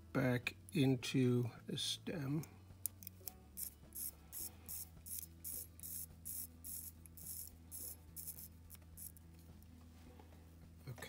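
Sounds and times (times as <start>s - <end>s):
watch crown ratcheting: 2.9s - 9.2s.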